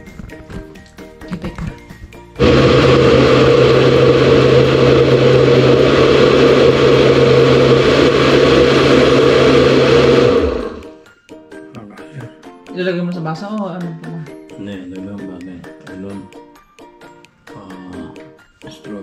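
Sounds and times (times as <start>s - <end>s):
blender motor running: 2.4s - 11.0s.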